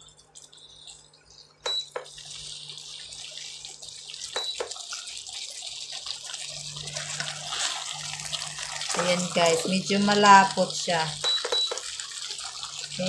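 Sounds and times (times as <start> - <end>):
sauce sizzling in a wok: 5.9 - 11.2.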